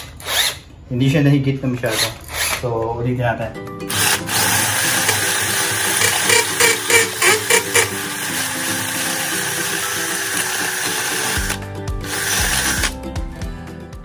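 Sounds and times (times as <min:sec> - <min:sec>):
cordless drill boring into concrete: 0:01.9 - 0:02.6, 0:03.9 - 0:13.0.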